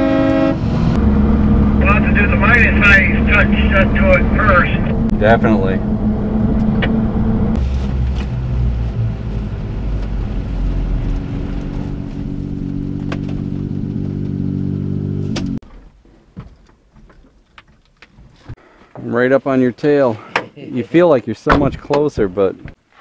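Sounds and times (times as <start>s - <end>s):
truck engine running: 0.0s - 14.9s.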